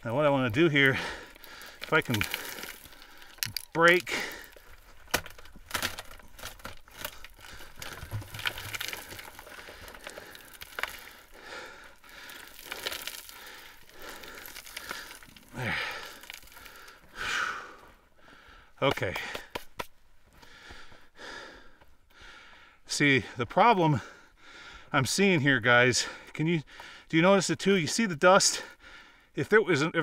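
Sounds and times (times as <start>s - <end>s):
rock cracking and knocking: 0.1s - 17.1s, 18.8s - 20.0s
rock debris falling: 0.1s - 17.1s.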